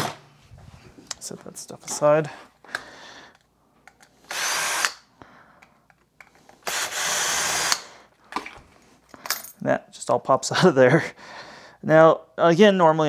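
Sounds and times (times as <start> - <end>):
cordless drill running: 4.2 - 5.0, 6.6 - 7.9.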